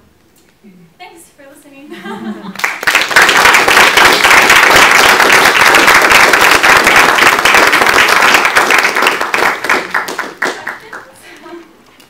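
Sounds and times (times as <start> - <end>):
audience applauding: 2.6 - 11.1.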